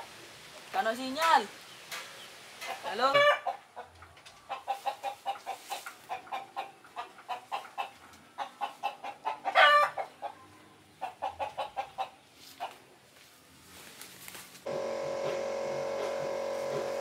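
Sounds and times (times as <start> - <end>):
chickens clucking: 1.9 - 12.9
chicken squawk: 4.5 - 10.4.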